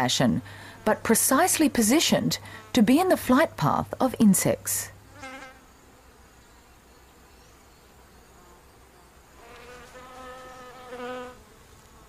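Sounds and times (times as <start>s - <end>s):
flying insect buzzing: 5.0s - 6.8s, 7.6s - 12.0s.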